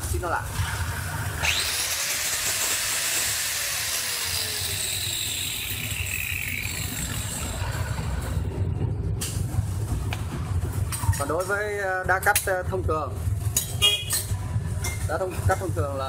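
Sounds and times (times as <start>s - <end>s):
angle grinder whirring: 0.5s - 8.5s.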